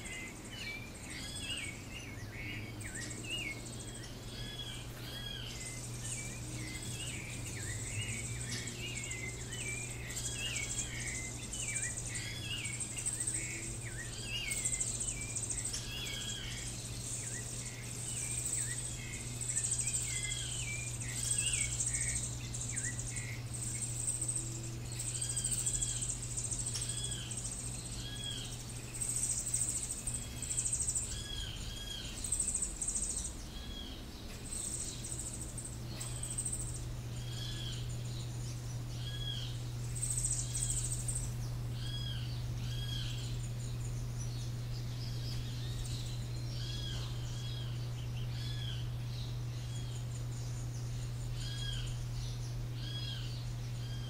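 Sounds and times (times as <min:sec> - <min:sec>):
birds chirping: 0:00.0 - 0:54.0
high insect drone: 0:00.0 - 0:54.0
low steady hum: 0:00.0 - 0:54.0.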